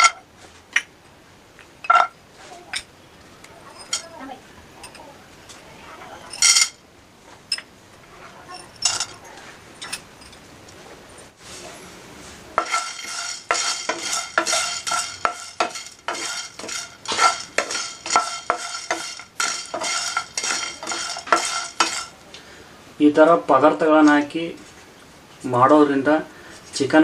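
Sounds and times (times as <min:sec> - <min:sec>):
spatula scraping a pan: 0:12.3 - 0:22.2
spices rattling in a pan: 0:12.6 - 0:22.2.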